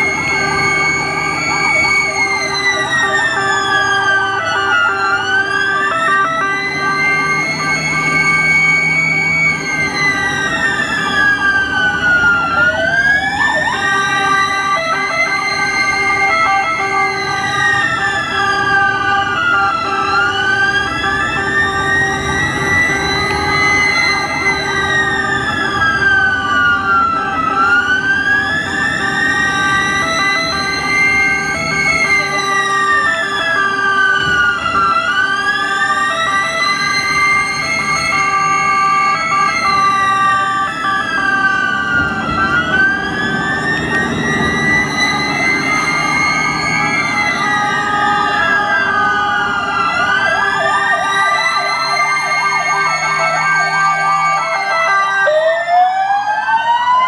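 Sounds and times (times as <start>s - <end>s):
ambulance sirens wailing: 0.0s - 57.0s
fast siren warble: 0.0s - 57.0s.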